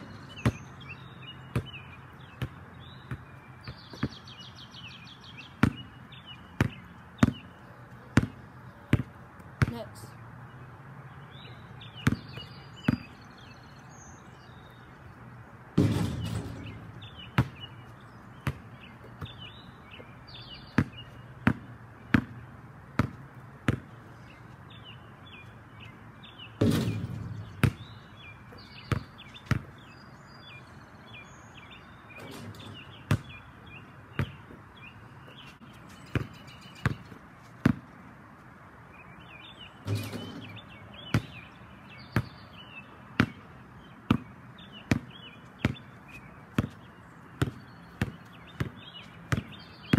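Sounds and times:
ball hitting backboard and rim: 0.0 - 0.7, 5.6 - 5.9, 6.6 - 7.4, 15.8 - 19.4, 20.7 - 22.4, 23.0 - 23.9, 26.6 - 29.8, 32.1 - 34.5, 35.5 - 37.9, 39.8 - 41.5, 43.2 - 43.4, 44.9 - 45.9, 47.4 - 49.9
basketball bouncing on concrete: 0.0 - 4.4, 5.5 - 10.1, 12.0 - 13.3, 15.8 - 20.1, 20.7 - 24.0, 26.6 - 29.8, 32.2 - 34.6, 35.5 - 38.0, 39.8 - 42.4, 43.1 - 49.9.

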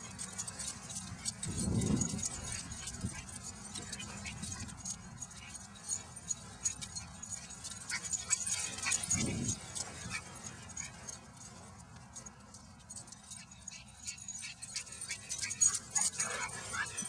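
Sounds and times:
light jingling: 0.0 - 17.0
puppies scuffling: 0.4 - 11.2.

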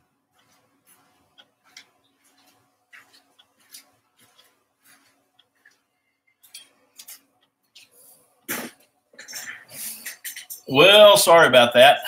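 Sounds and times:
person moving about: 0.4 - 10.7.

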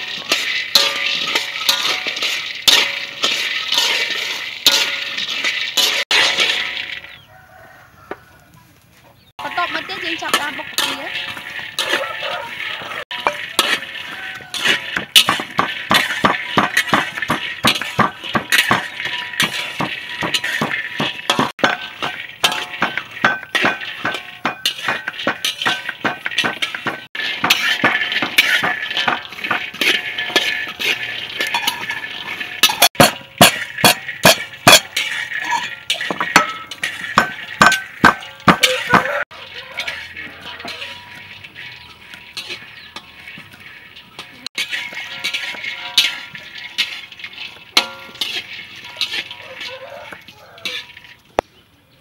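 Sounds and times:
metal spatula scraping a wok: 0.0 - 7.8, 9.2 - 51.4
pestle pounding in wooden mortar: 13.1 - 29.9, 32.6 - 35.0, 35.9 - 39.3.

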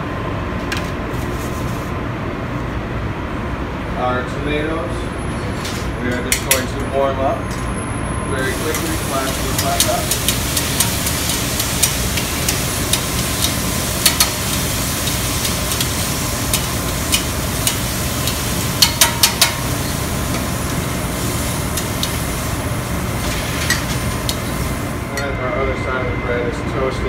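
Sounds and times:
steady rushing background noise: 4.0 - 27.0
faint sizzling: 8.4 - 26.1
metal tongs tapping on griddle: 8.7 - 20.5.

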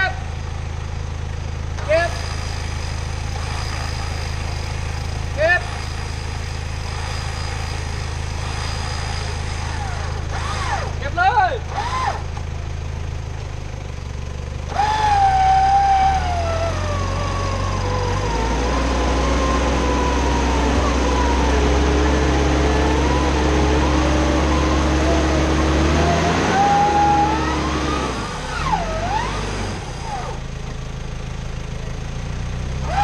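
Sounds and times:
vehicle engine running: 0.0 - 33.0
electric winch whine: 1.8 - 11.0, 11.7 - 12.4, 14.7 - 30.5.

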